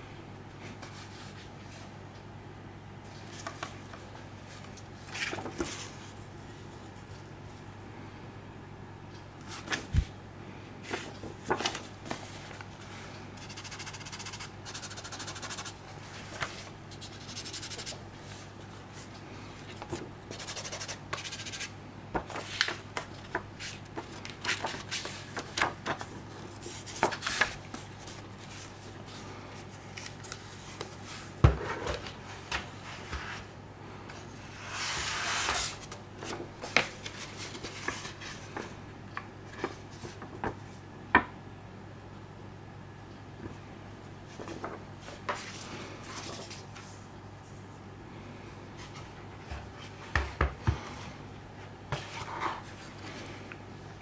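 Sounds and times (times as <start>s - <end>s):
cardboard and paper rustling: 3.1s - 7.0s, 10.8s - 20.1s, 21.2s - 33.5s, 34.6s - 38.8s.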